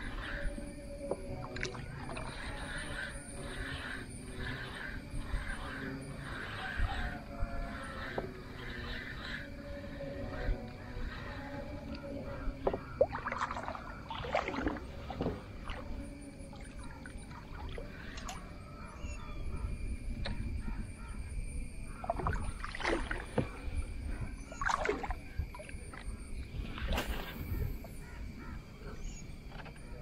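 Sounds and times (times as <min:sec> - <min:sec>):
paddle splashing through water: 0:12.6 - 0:16.0, 0:22.0 - 0:23.7, 0:24.5 - 0:26.0.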